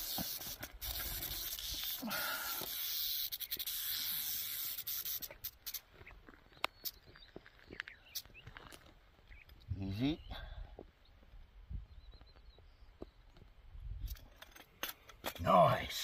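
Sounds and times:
rattlesnake tail rattle buzzing: 0.0s - 5.9s
clicks and scrapes: 14.0s - 15.5s.

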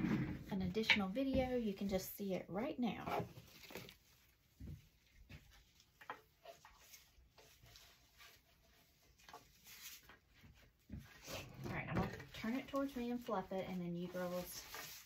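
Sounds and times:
faint taps and rustles: 4.2s - 15.0s.

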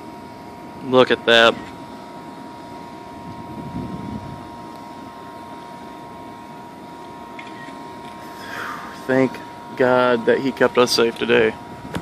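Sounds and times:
faint steady hum: 0.0s - 12.0s
rushing wind: 3.2s - 4.5s.

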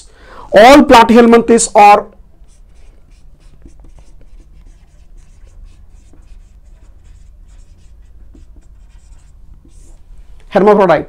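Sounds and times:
marker pen writing on whiteboard: 1.8s - 10.1s.

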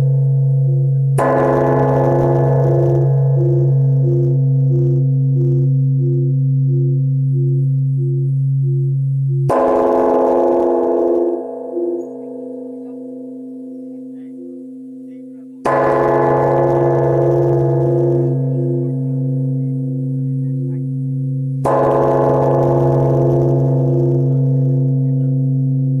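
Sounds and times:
large bell struck with log: 0.0s - 26.0s.

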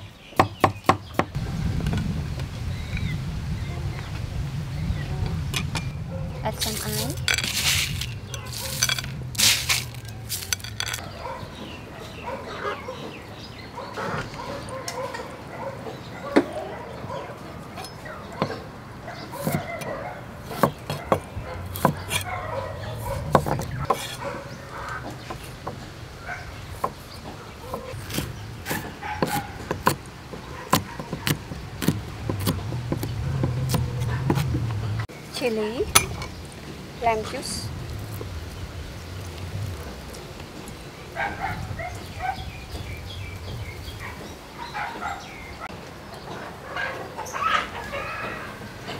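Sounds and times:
sharp rustling crunches: 6.5s - 11.4s
chickens clucking: 10.0s - 31.4s, 40.4s - 48.9s
knife chopping on wooden board: 20.4s - 22.3s, 23.2s - 24.3s, 26.8s - 34.8s.

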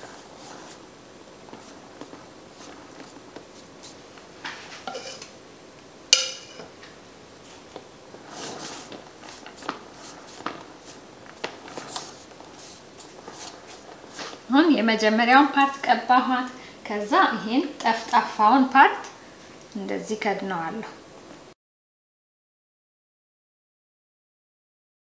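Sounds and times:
utensil scraping frosting: 0.0s - 4.0s, 7.4s - 14.5s.

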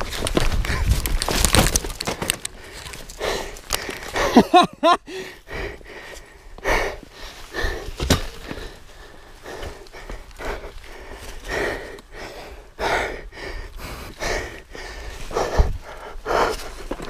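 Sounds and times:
footsteps on loose rock: 0.0s - 4.4s, 7.3s - 12.1s, 15.1s - 17.0s.

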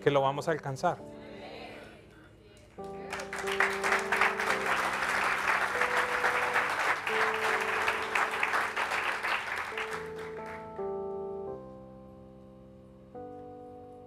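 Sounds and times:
slow held background chords: 0.0s - 14.0s
congregation applauding: 2.8s - 10.8s.

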